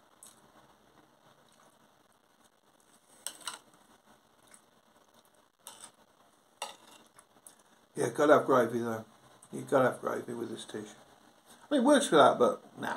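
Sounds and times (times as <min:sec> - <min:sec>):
cutlery scraping a plate: 0:03.2 - 0:03.6, 0:05.7 - 0:06.0, 0:06.6 - 0:07.2.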